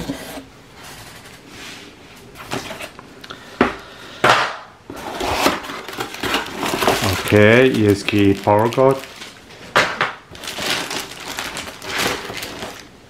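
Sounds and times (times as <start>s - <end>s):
cardboard scraping: 0.0s - 1.8s, 4.9s - 7.9s
packaging rustling: 4.9s - 13.0s.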